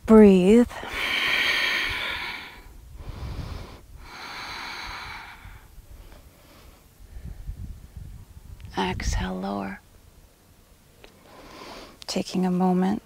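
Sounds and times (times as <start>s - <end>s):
woman breathing deeply: 0.8s - 7.7s, 11.2s - 12.0s.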